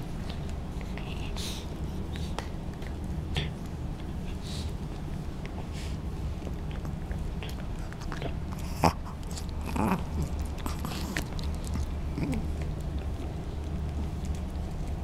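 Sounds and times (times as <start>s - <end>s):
dog gnawing on a chew: 0.0s - 15.0s.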